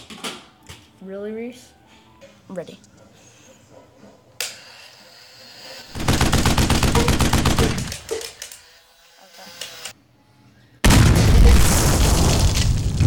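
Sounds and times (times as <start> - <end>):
rapid gunshots: 5.9 - 8.1.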